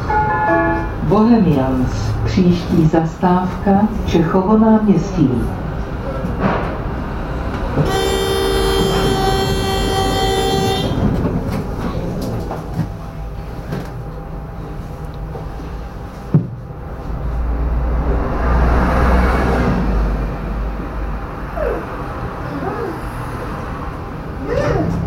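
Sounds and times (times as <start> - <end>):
tram electronic warning tone: 0.0 - 3.6, 7.3 - 17.6
bus engine passing: 0.0 - 25.0
tram humming at standstill: 0.0 - 25.0.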